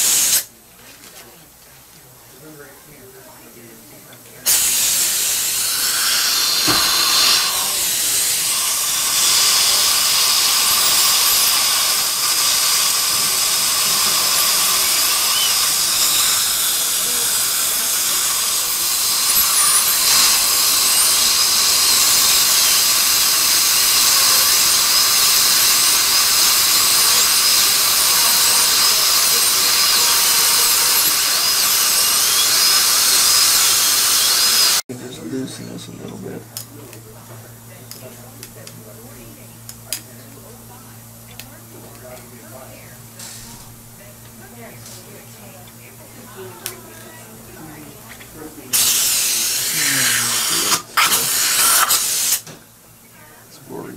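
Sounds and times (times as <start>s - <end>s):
dental drill whining: 0.0s - 0.5s, 4.4s - 34.8s, 46.4s - 52.6s
spray hiss: 0.0s - 0.5s, 4.5s - 34.8s, 48.7s - 52.4s.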